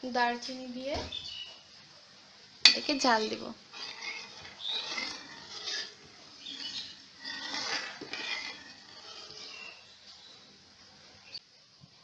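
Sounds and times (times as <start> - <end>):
spoon scraping and clinking in pan: 2.7 - 9.9.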